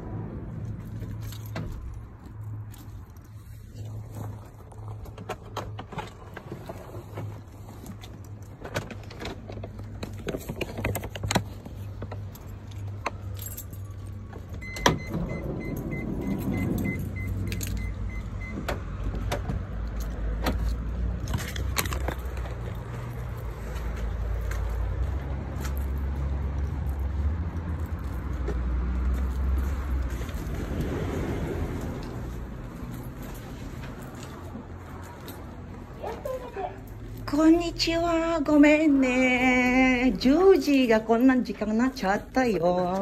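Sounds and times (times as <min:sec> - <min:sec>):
metallic jingling and clicking: 0:10.4 - 0:18.4
car engine humming: 0:11.4 - 0:40.3.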